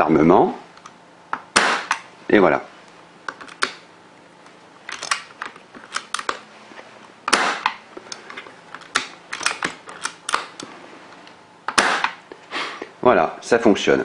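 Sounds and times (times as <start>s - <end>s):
airsoft rifle shot: 1.5s - 2.0s, 7.3s - 7.8s, 11.7s - 12.2s
handling clicks and knocks: 3.2s - 12.4s.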